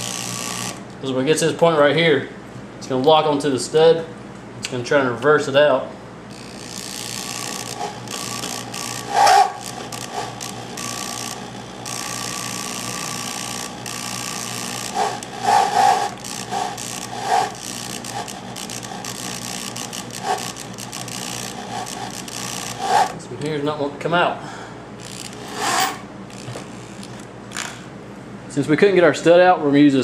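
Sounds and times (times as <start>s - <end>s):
drill bit grinding into steel: 0.0s - 0.8s, 6.3s - 23.2s, 25.0s - 27.8s
drill bit squealing: 6.3s - 23.2s, 25.0s - 27.8s.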